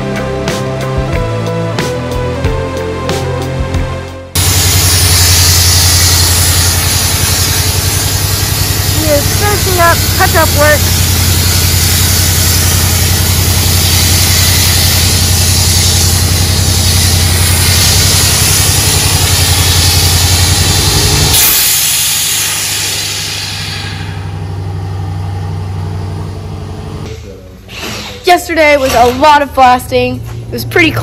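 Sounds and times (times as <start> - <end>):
sandblasting hiss: 4.4 - 24.5
low mechanical hum: 4.4 - 31.0.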